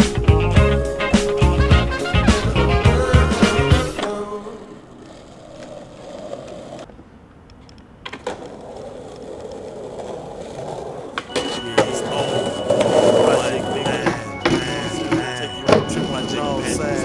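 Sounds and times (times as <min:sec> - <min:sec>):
skateboard wheels rolling on asphalt: 0:00.1 - 0:17.0
skateboard clicks: 0:04.9 - 0:15.9.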